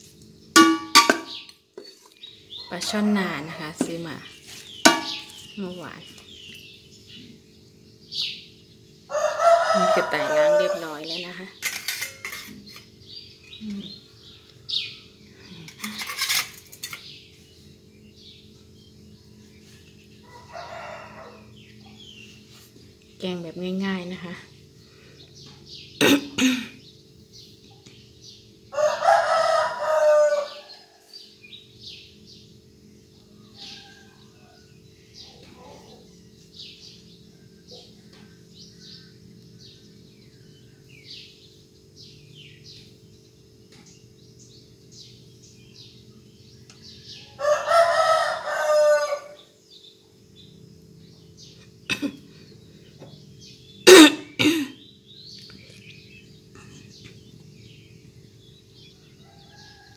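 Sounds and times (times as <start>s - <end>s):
small birds chirping: 0.0s - 59.9s
sharp knocks: 4.9s - 5.4s
rooster crowing: 9.1s - 11.2s, 20.2s - 21.8s, 28.7s - 31.2s, 33.4s - 34.8s, 47.0s - 49.6s, 58.8s - 59.9s.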